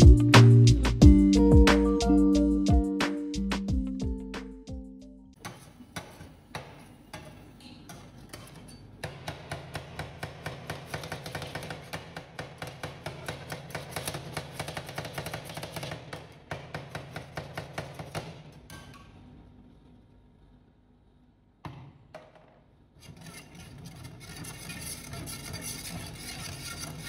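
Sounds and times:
metal scraper tapping steel plate: 0:05.4 - 0:19.0.

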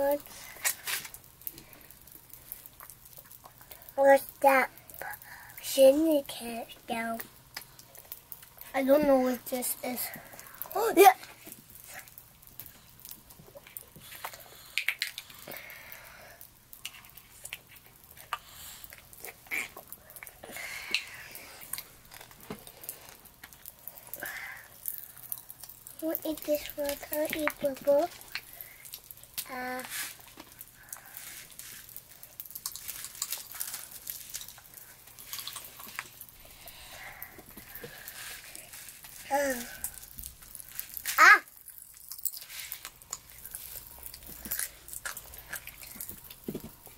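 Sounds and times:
candy packet crinkling: 0:00.0 - 0:05.5, 0:16.2 - 0:46.9
popping candy crackling: 0:00.0 - 0:46.9
children slurping and chewing: 0:07.0 - 0:46.9.

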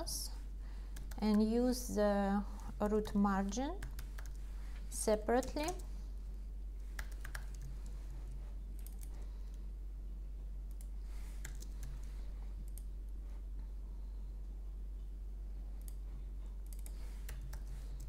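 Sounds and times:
steady low hum: 0:00.0 - 0:18.0
keyboard typing: 0:03.0 - 0:04.4, 0:05.3 - 0:05.9, 0:06.8 - 0:09.2, 0:10.7 - 0:12.9, 0:16.6 - 0:18.0.

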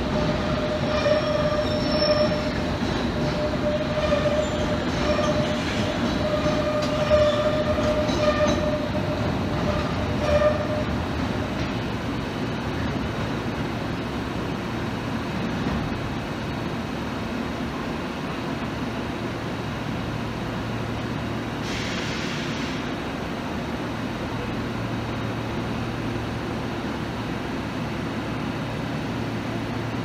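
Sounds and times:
train equipment humming: 0:00.0 - 0:21.7
air hissing: 0:21.6 - 0:23.0.

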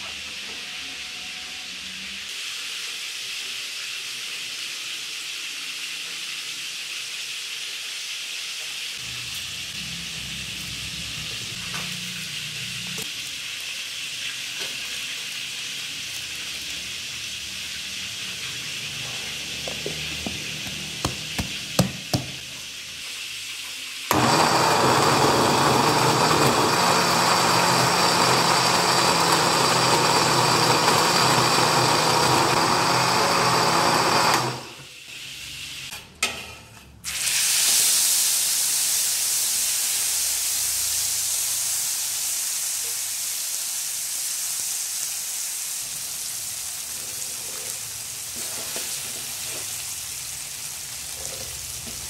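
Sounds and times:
blender running: 0:18.8 - 0:22.4, 0:24.1 - 0:35.0.

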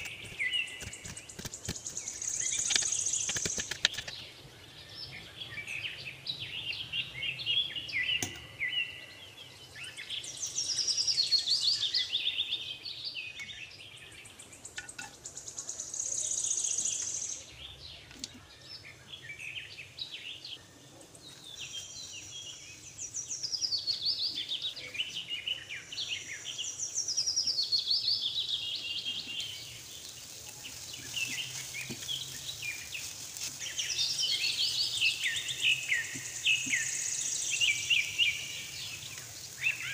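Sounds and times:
birds chirping and trilling: 0:00.0 - 0:39.9.

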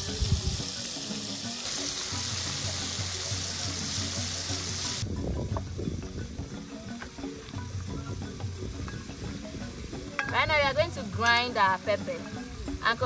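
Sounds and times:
fish sizzling in hot oil: 0:00.0 - 0:05.2
background music with low notes: 0:00.0 - 0:13.0.

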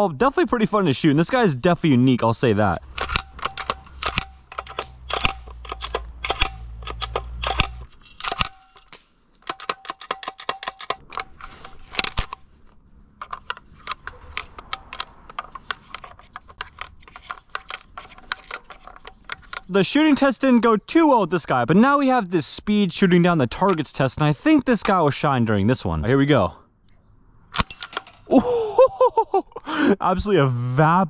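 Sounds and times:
plastic and metal parts clicking: 0:02.8 - 0:19.8.

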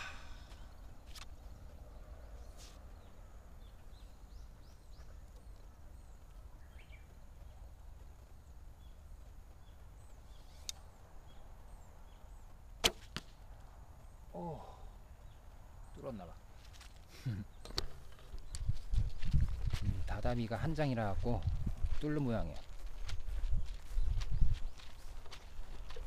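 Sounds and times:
arrow knock: 0:12.8 - 0:13.4.

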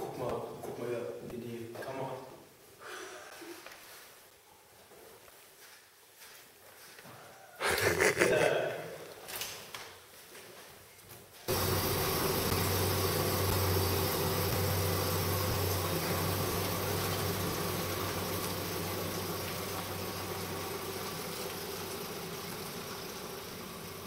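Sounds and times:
car engine humming: 0:11.5 - 0:24.0.

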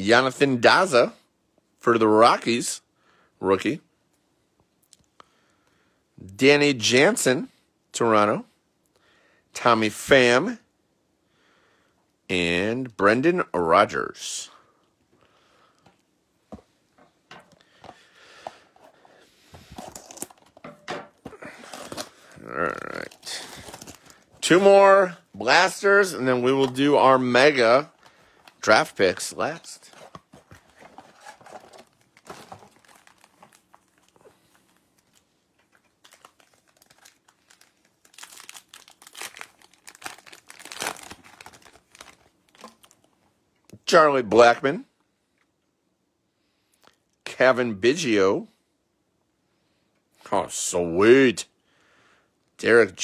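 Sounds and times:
plastic wrapper rustling: 0:17.8 - 0:43.2
foil wrapper tearing and crinkling: 0:19.8 - 0:20.4, 0:30.8 - 0:35.2, 0:35.8 - 0:43.1.

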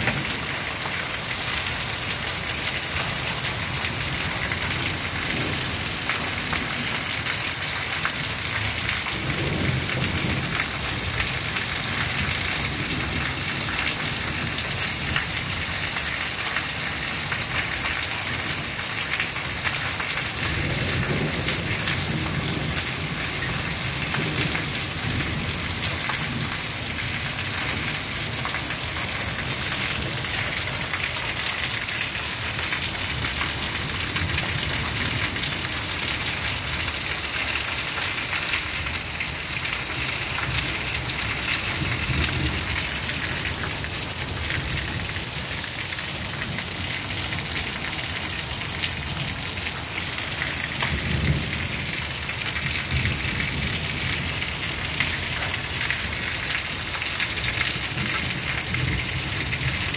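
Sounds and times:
heavy rain pouring: 0:00.0 - 0:59.9.

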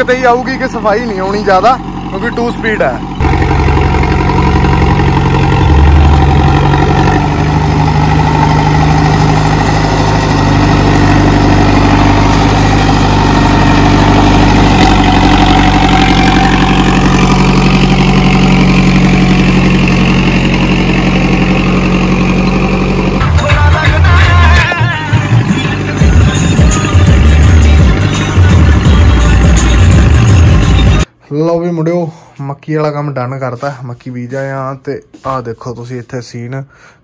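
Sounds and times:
tractor diesel engine running: 0:00.0 - 0:31.2
rotary tiller working soil: 0:01.4 - 0:23.2.

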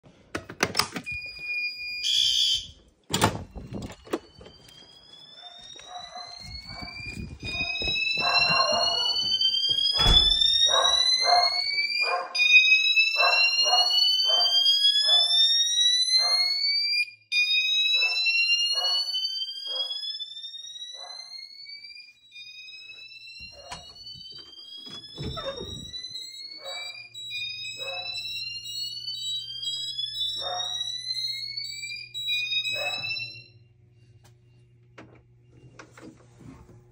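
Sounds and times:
fire alarm pull station click: 0:00.4 - 0:16.4, 0:23.3 - 0:33.4
fire alarm whoop tone: 0:01.0 - 0:02.8, 0:03.5 - 0:33.8
pulsing low alarm note: 0:03.5 - 0:16.7, 0:17.6 - 0:34.6.

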